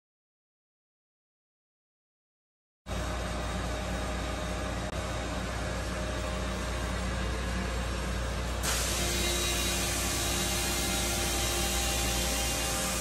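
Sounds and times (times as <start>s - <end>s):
machinery hum: 2.9s - 13.0s
loud hiss: 8.6s - 13.0s.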